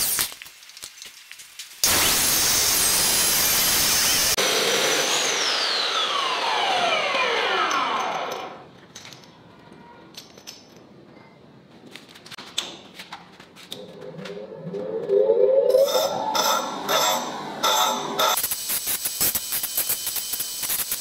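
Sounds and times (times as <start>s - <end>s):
chop saw winding down: 1.8s - 8.6s, 15.6s - 18.4s.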